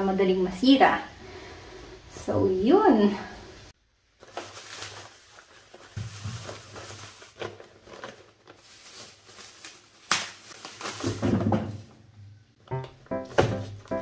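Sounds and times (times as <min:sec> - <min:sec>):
plastic bags crinkling: 0:04.1 - 0:12.1
potatoes thudding into bag: 0:04.2 - 0:12.0
paper bag rustling: 0:04.2 - 0:12.1.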